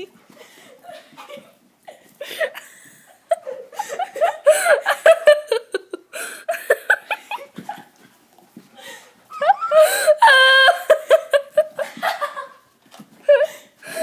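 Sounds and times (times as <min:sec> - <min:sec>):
girl laughing and giggling: 0:00.8 - 0:08.1, 0:08.8 - 0:14.0
girl squealing: 0:09.3 - 0:11.0.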